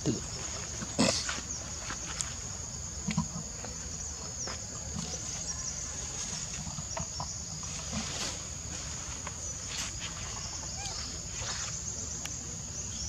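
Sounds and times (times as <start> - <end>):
insect drone: 0.0 - 13.0.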